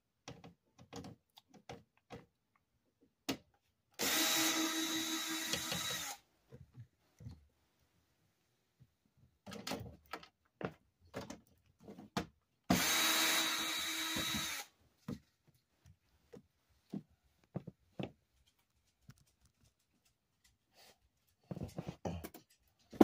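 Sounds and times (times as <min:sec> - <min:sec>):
cordless drill motor whine: 0:04.0 - 0:06.2, 0:12.7 - 0:14.7.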